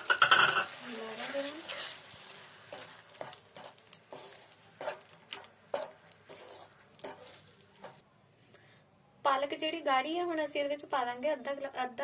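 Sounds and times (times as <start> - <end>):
spoon scraping a metal pan: 0.0 - 2.1, 2.7 - 8.0.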